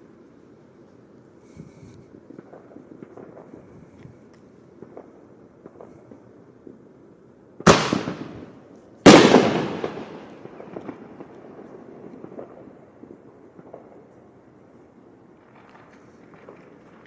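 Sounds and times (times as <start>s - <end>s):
firework bangs with echo: 7.6s - 12.7s.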